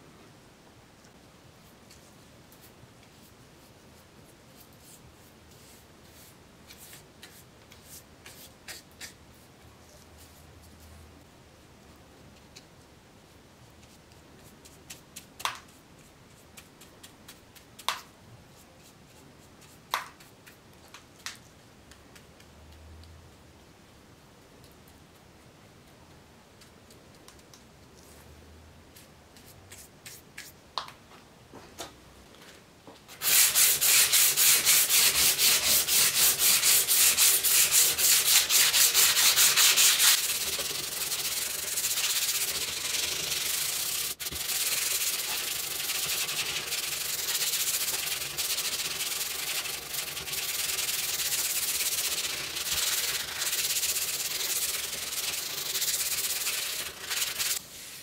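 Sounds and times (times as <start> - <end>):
sanding metal scabbard: 33.2 - 58.0.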